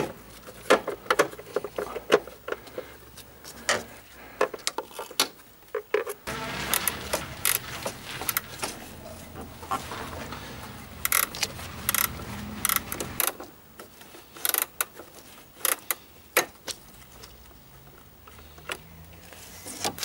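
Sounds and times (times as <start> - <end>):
metallic clicks and knocks: 10.0 - 13.5.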